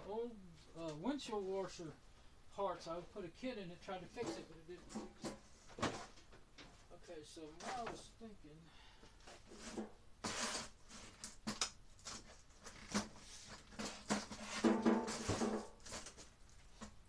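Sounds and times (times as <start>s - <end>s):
objects knocking and clattering: 4.2s - 6.8s, 11.4s - 17.0s.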